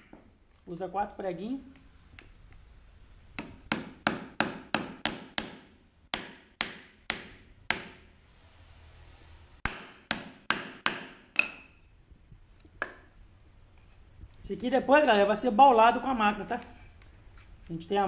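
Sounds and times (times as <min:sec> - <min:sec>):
hammer driving nails into wood: 0:03.4 - 0:08.0, 0:09.6 - 0:11.8.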